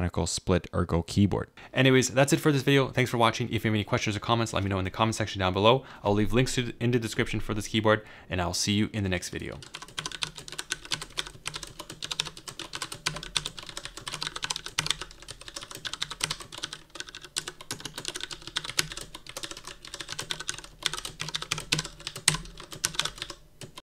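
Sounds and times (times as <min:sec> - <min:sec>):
mechanical keyboard typing: 0:09.5 - 0:23.8.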